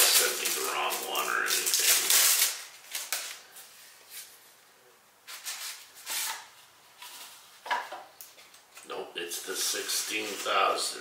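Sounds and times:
plastic packaging crinkling: 0.0s - 3.7s.

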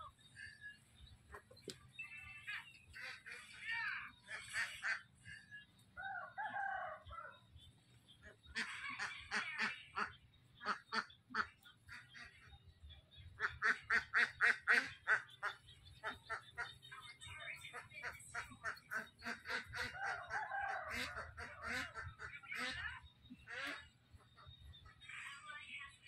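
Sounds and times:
ducks quacking: 0.0s - 7.4s, 8.1s - 25.9s.

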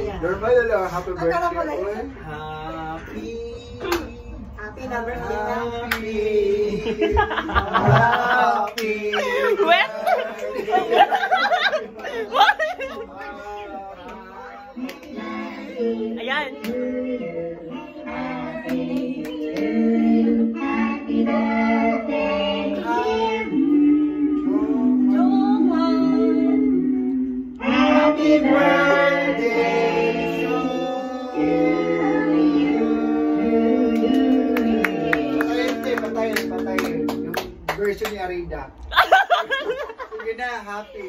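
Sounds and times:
people singing a birthday tune: 0.0s - 37.7s.

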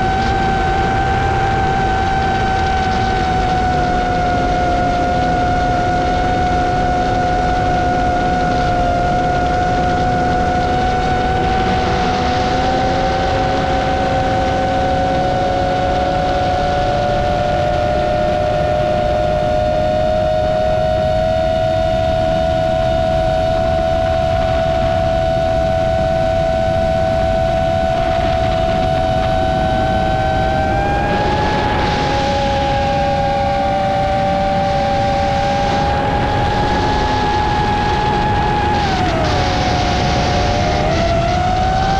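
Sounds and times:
drone propellers whining: 0.0s - 41.9s
wind noise: 0.0s - 41.9s.

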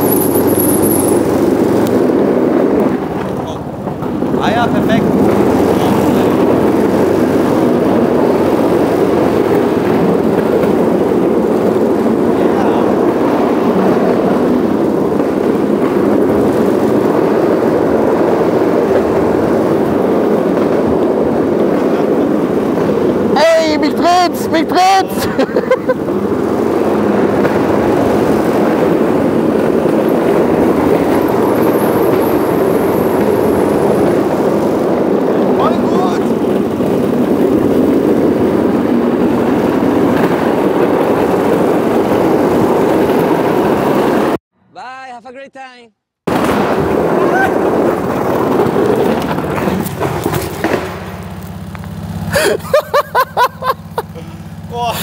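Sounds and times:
go-kart engine rumble: 0.0s - 44.4s, 46.3s - 55.0s
rushing air: 0.0s - 44.7s.

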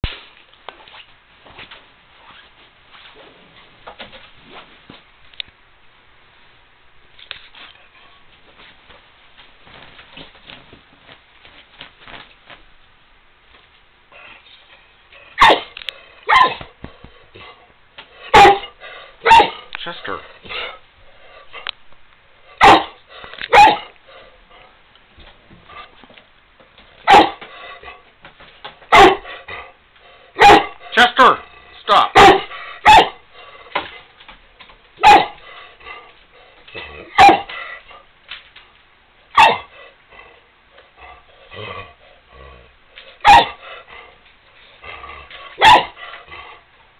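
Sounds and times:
dog barking: 15.4s - 16.7s, 18.3s - 19.7s, 22.6s - 24.0s, 27.0s - 27.4s, 28.9s - 29.3s, 30.4s - 30.8s, 32.1s - 33.2s, 35.0s - 35.4s, 37.1s - 37.5s, 39.3s - 39.7s, 43.2s - 43.6s, 45.6s - 46.0s.

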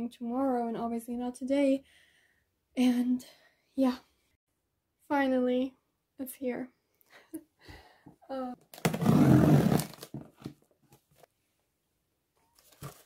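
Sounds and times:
packing tape tearing: 8.7s - 10.3s.

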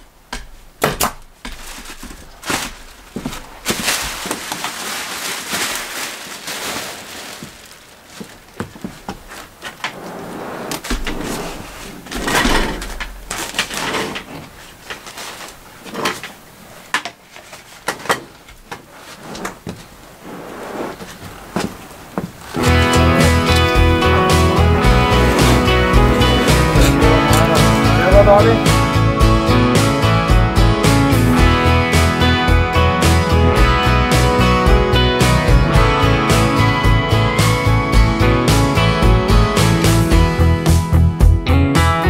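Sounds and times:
insulation rustling and scraping: 1.5s - 28.8s.

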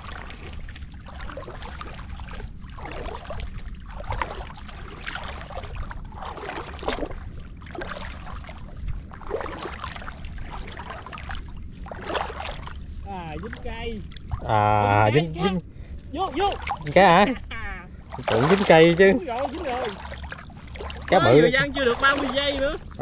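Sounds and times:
low rumble: 0.0s - 23.0s
water splashing and sloshing: 0.0s - 23.0s.

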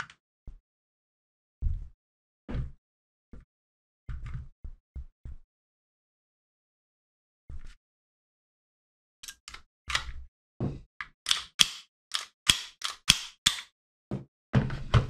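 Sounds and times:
pistol parts clacking: 11.3s - 13.7s.

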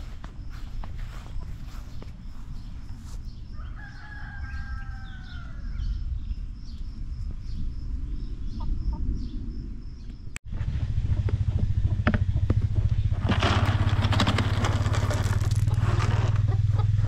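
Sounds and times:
rooster crowing: 3.5s - 5.9s.

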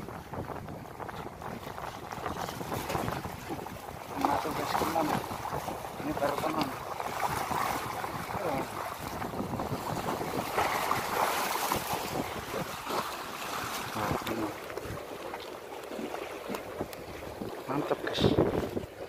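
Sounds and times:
waves washing against concrete: 0.0s - 19.0s
wind buffeting microphone: 0.0s - 19.0s.

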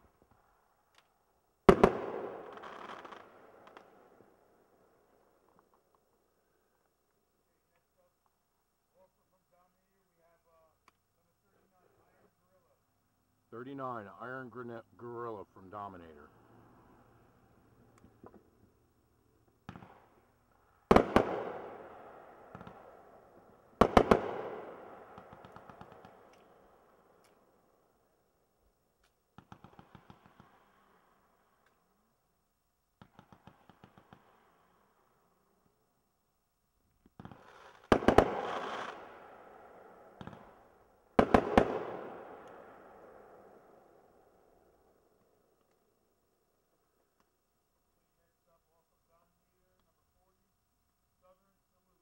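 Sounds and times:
firework bangs with echo: 1.7s - 4.1s, 19.6s - 26.3s, 37.2s - 43.5s.

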